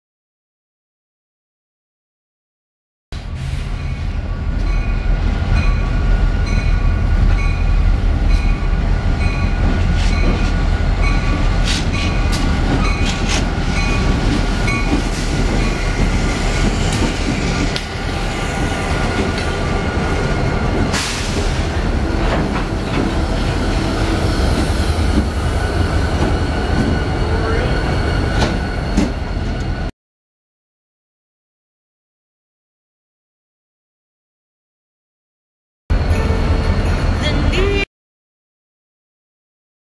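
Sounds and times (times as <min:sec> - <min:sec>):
diesel locomotive rumble: 0:03.2 - 0:29.9.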